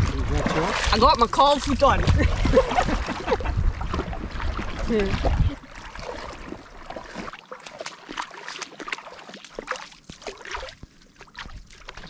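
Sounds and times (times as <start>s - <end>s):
feet wading through water: 0.0s - 12.0s.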